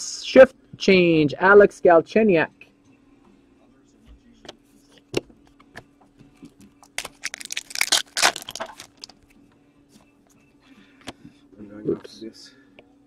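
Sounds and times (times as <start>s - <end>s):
cards being handled: 6.4s - 9.2s
foil pack tearing and crinkling: 6.8s - 9.1s.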